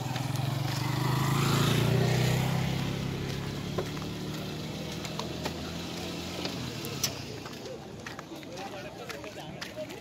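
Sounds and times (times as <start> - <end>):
motorcycle engine passing: 0.0 - 7.8.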